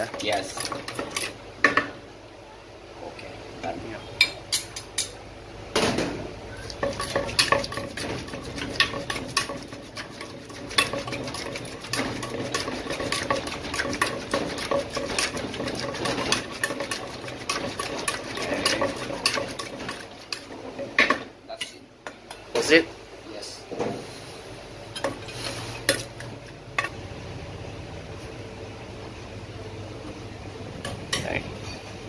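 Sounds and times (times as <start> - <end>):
metal spoon scraping: 6.8 - 20.5.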